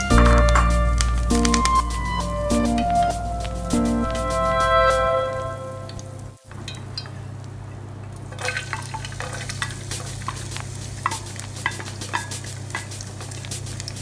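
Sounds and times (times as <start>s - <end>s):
steady low hum: 0.0s - 6.5s
garlic sizzling in hot oil: 5.9s - 14.0s.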